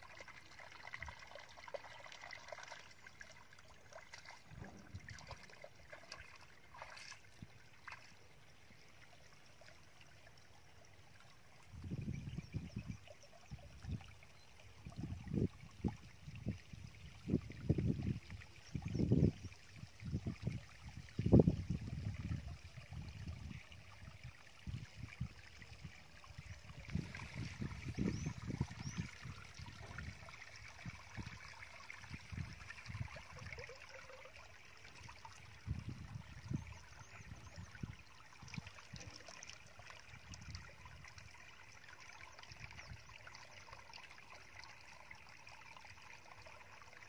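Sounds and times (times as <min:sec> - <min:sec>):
water trickling into pool: 0:00.0 - 0:47.0.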